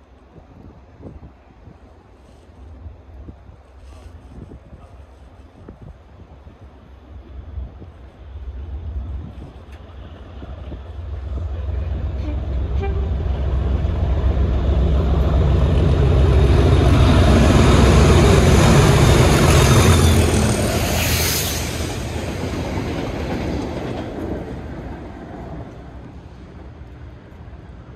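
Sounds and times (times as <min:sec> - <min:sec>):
brief hiss: 0:03.7 - 0:05.6
diesel locomotive engine passing: 0:06.3 - 0:27.9.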